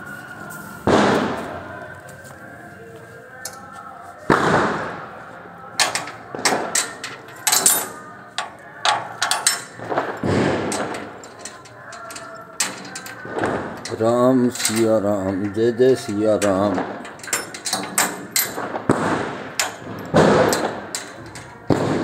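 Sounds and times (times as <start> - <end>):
firecracker bangs: 0.8 - 1.7, 4.3 - 5.2, 9.7 - 11.2, 13.2 - 13.8, 18.6 - 20.9, 21.6 - 22.0
firecracker cracks: 0.8 - 1.7, 4.3 - 5.2, 6.0 - 7.0, 9.6 - 11.8, 18.3 - 22.0.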